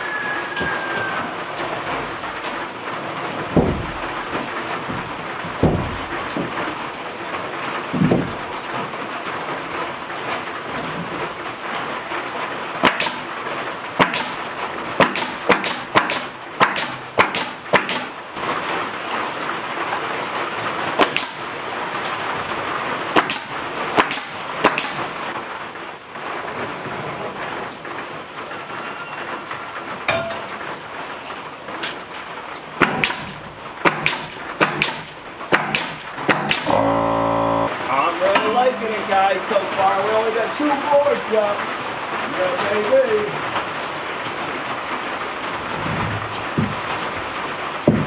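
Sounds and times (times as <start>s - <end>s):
rain on a metal roof: 0.0s - 48.0s
nail gun shots: 12.8s - 13.4s, 14.0s - 18.2s, 21.0s - 21.6s, 23.1s - 25.2s, 32.8s - 37.7s.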